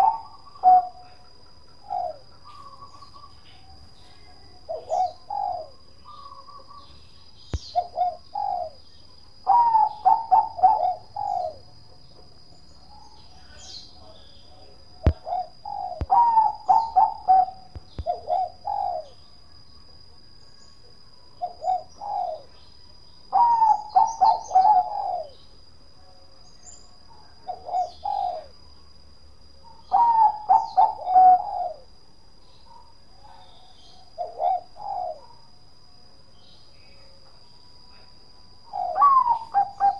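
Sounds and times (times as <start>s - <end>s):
dove cooing: 0.0s - 7.0s, 7.6s - 8.8s, 9.4s - 11.6s, 15.0s - 19.2s, 21.4s - 22.5s, 23.3s - 25.4s, 27.4s - 28.6s, 29.8s - 31.9s, 33.2s - 35.4s, 38.7s - 39.9s.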